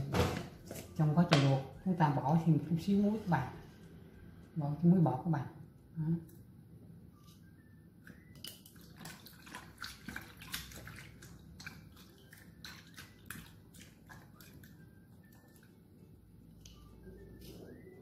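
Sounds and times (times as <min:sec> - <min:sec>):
small wet splashes: 0:08.4 - 0:15.8
hand stirring mushrooms in water: 0:08.4 - 0:17.8.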